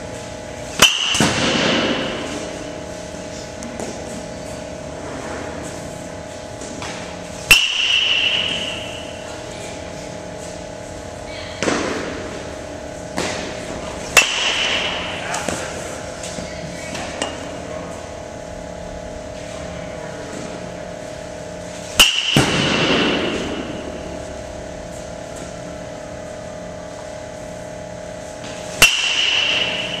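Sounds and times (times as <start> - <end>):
steady hum: 0.0 - 30.0
metal bat hitting ball: 0.8 - 2.5, 6.8 - 9.2, 14.1 - 15.5, 22.0 - 24.0, 28.7 - 30.0.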